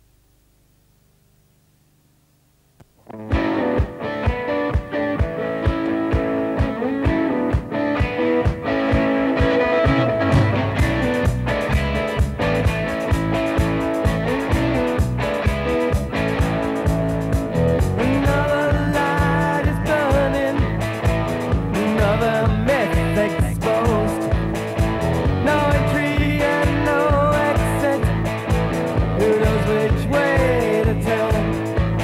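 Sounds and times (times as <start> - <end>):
rock band playing: 3.2 - 32.0
male lead vocal: 18.0 - 24.6, 25.2 - 32.0.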